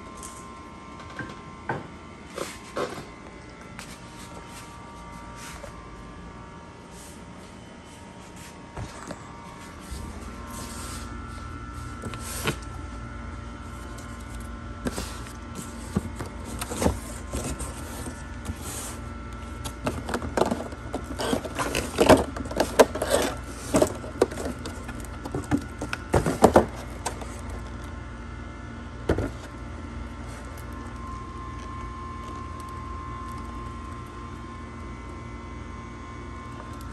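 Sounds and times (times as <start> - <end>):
steady background hum: 0.0 - 36.9
cardboard and plastic packaging crackling: 8.7 - 28.0, 29.1 - 34.4.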